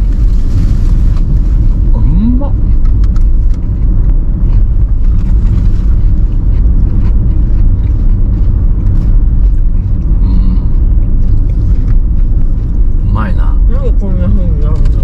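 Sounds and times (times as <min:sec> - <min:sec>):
car engine rumble: 0:00.0 - 0:15.0
road noise: 0:00.0 - 0:15.0.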